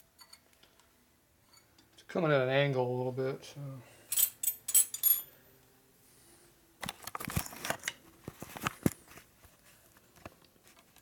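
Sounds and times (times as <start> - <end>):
metal tools clinking: 4.1 - 5.3.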